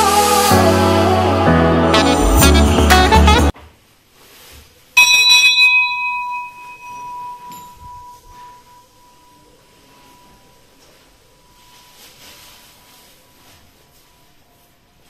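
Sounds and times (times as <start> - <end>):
temple bell ringing: 5.0 - 11.9.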